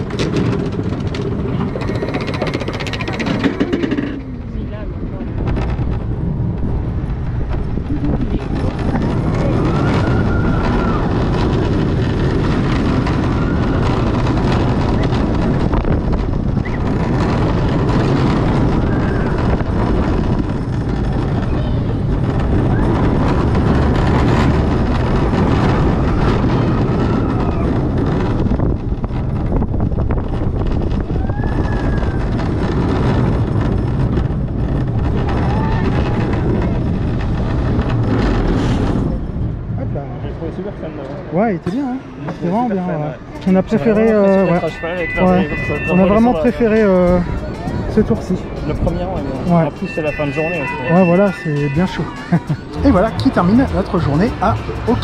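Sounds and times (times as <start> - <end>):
roller coaster wheel rumble: 0.0 - 55.0
rushing wind: 0.0 - 55.0
rising and falling whines: 43.5 - 55.0.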